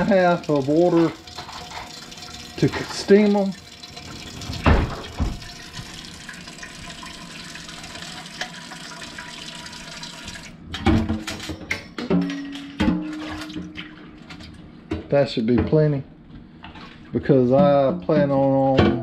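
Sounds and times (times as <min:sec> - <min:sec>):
tap water pouring into metal pot: 0:00.0 - 0:10.6.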